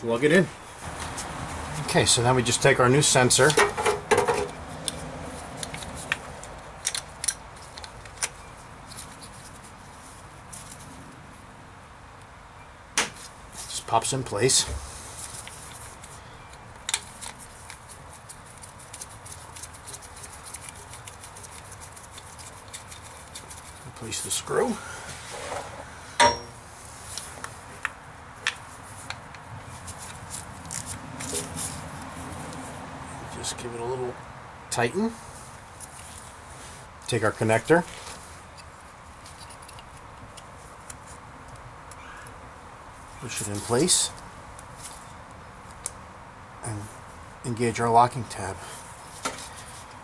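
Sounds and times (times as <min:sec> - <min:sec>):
small metal clicks: 0:05.6 - 0:09.2, 0:38.5 - 0:42.0.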